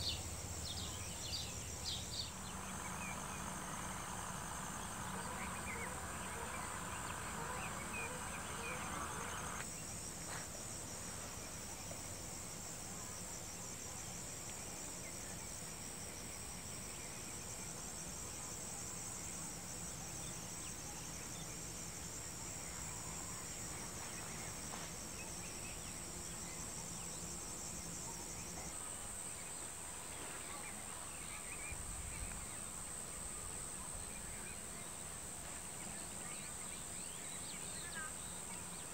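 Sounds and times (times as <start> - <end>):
insects trilling: 0.0 - 38.9
low insect buzz: 0.0 - 38.9.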